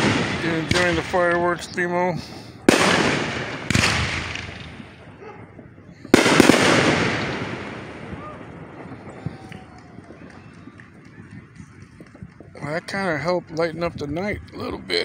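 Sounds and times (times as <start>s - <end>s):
fireworks booming: 0.0s - 12.5s
fireworks crackling: 0.0s - 15.0s.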